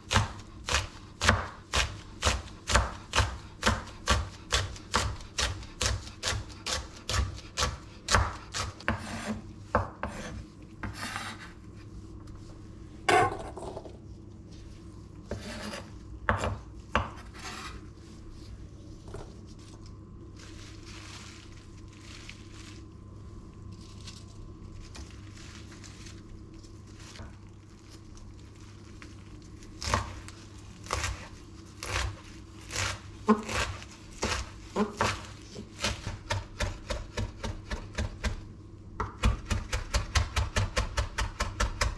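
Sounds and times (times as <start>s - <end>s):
knife chopping on wooden board: 0.1s - 11.4s, 32.7s - 38.4s.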